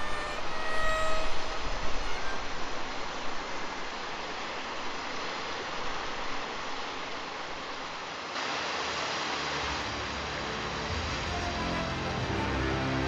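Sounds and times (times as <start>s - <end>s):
wind noise on microphone: 0.0s - 4.0s
music: 9.6s - 13.0s.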